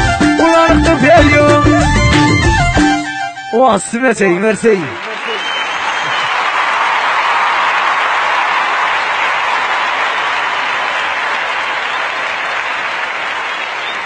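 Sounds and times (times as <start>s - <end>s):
audience applause: 4.5s - 14.0s.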